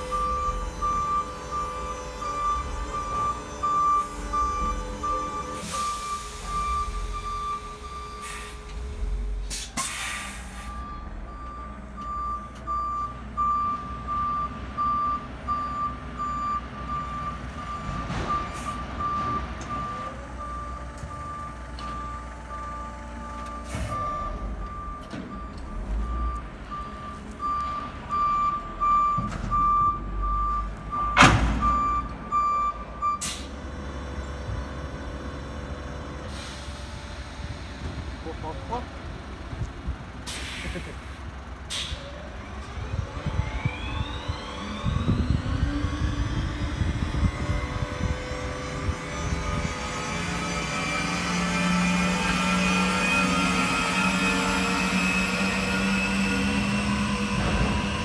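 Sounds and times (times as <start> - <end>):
reversing alarm beeping: 0.0 - 9.4, 10.2 - 33.6, 42.9 - 58.0
loud clunk: 31.2 - 31.8.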